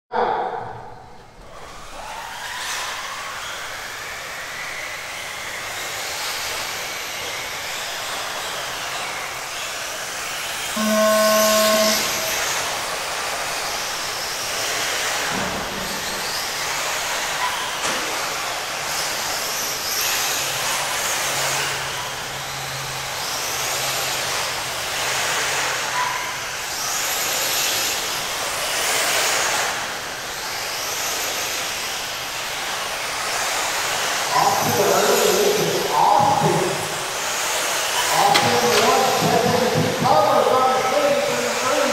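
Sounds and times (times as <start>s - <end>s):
radio-controlled cars whining: 1.2s - 41.9s
short horn-like tone: 10.8s - 12.8s.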